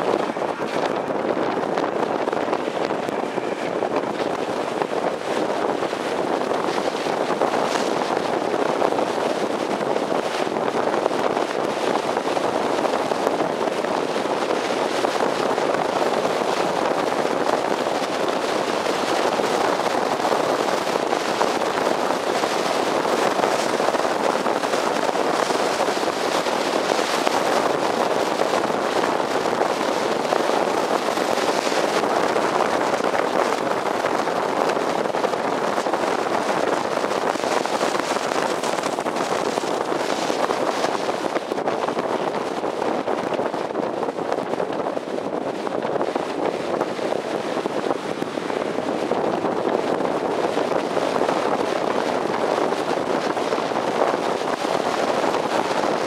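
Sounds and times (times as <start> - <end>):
tyre and road noise: 0.0 - 56.0
wind buffeting microphone: 0.0 - 56.0.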